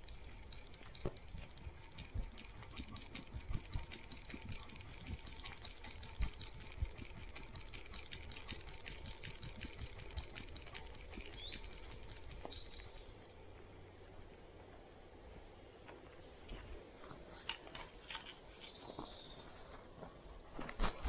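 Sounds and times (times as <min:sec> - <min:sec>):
light rattle and jingle: 0:00.0 - 0:15.4
bird chirp: 0:01.6 - 0:15.9, 0:17.9 - 0:19.8.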